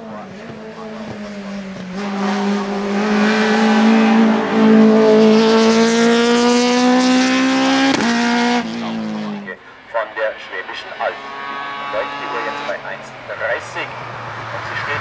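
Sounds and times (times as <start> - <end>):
car engine accelerating at high revs: 0.0 - 9.5, 11.1 - 12.8.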